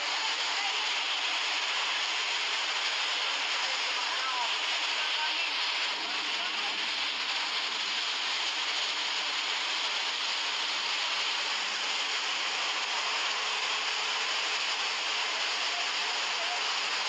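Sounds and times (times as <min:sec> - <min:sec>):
heavy rain: 0:00.0 - 0:17.0
muddy floodwater rushing: 0:00.0 - 0:17.0.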